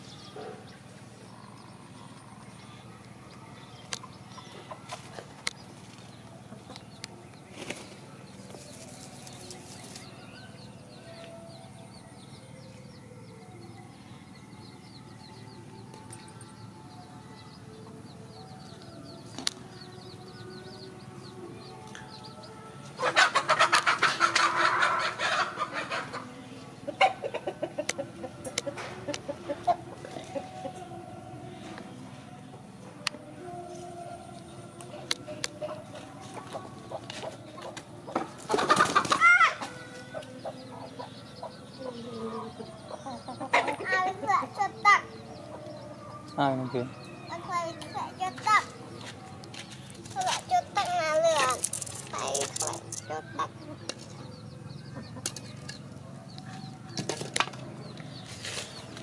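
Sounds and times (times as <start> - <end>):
chicken clucking: 3.9 - 7.1, 21.8 - 30.9, 34.7 - 59.0.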